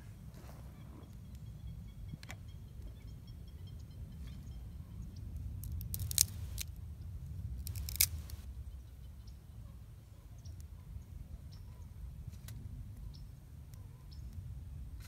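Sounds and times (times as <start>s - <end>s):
twigs crackling and snapping: 5.6s - 6.8s, 7.5s - 8.5s.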